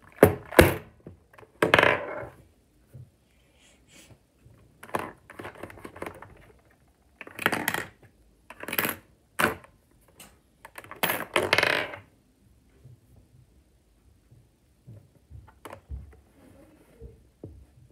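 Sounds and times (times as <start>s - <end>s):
plastic parts clacking and scraping: 4.8s - 11.5s.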